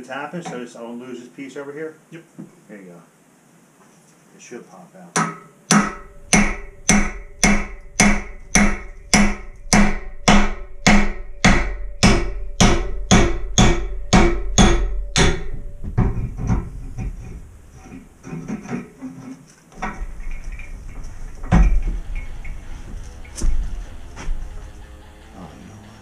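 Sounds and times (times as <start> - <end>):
sledgehammer striking steel chisel: 5.2 - 15.6
soft knocks and clatter: 15.6 - 24.5.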